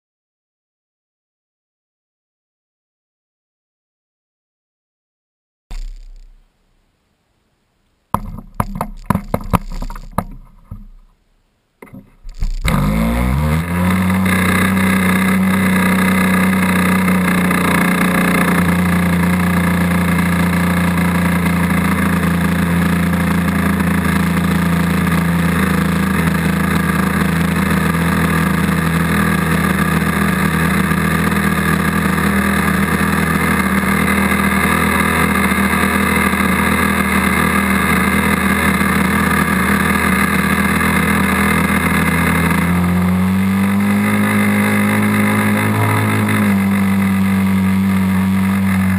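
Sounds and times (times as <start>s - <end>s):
knocks and clatter: 8.1s - 11.2s
model airplane engine running: 12.2s - 48.9s.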